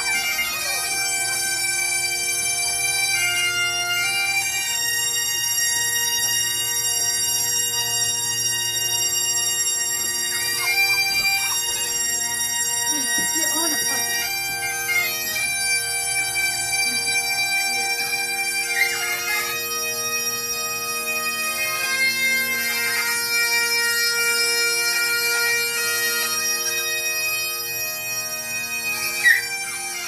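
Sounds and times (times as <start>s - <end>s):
bagpipe music: 0.0s - 30.0s.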